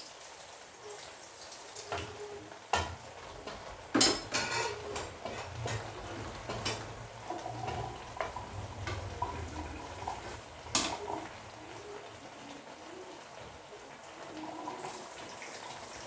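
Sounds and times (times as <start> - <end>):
spatula scraping metal wok: 4.2 - 10.5.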